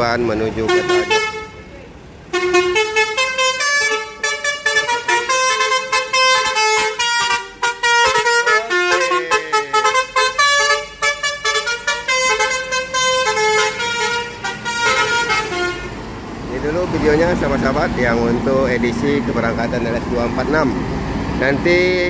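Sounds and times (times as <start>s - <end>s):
musical bus horn tune: 0.6s - 1.7s, 2.3s - 16.0s.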